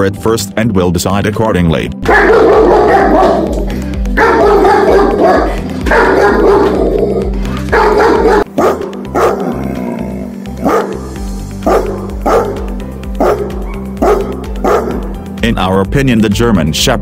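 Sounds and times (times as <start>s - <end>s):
background music: 0.0s - 17.0s
dog barking rapidly: 2.0s - 9.6s, 10.6s - 15.2s
dog barks: 2.0s - 9.6s, 10.6s - 15.2s.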